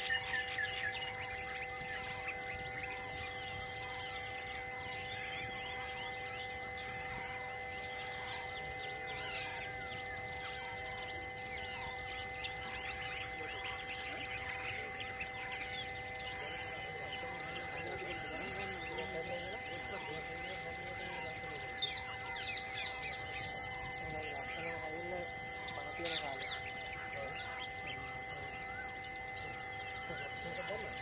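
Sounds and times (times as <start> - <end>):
birds chirping and calling: 0.0 - 31.0
insect drone: 0.0 - 31.0
loud whistled bird calls: 0.0 - 31.0.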